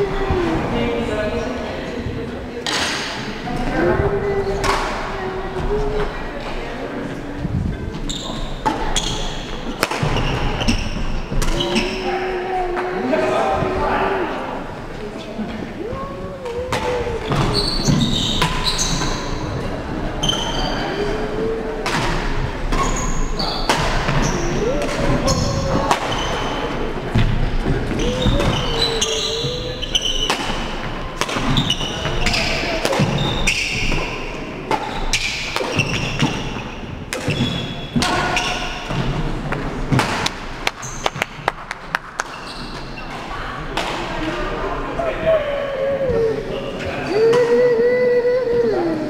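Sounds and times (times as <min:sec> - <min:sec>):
sneakers squeaking on wooden floor: 0:07.9 - 0:12.3, 0:15.9 - 0:19.6, 0:20.2 - 0:21.2, 0:22.7 - 0:39.2, 0:42.2 - 0:43.2.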